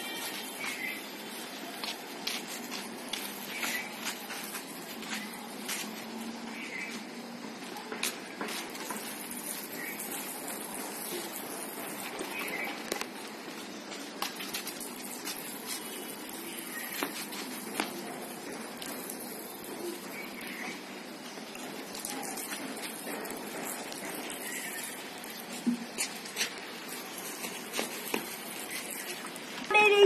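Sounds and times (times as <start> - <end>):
water pouring onto concrete: 8.1 - 13.3, 14.0 - 30.0.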